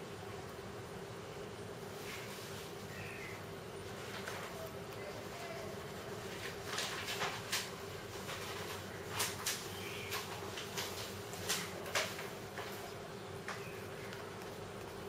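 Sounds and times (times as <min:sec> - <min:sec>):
faint hum: 0:00.0 - 0:15.0
rabbit chewing greens: 0:00.0 - 0:15.0.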